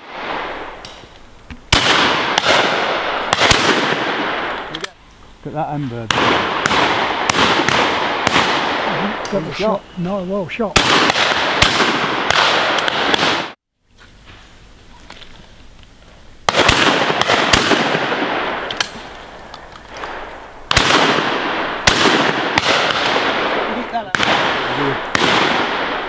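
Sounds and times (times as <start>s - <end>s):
shotgun shots echoing: 1.7s - 4.9s, 6.0s - 9.7s, 10.6s - 13.6s, 16.5s - 19.2s, 19.9s - 26.0s.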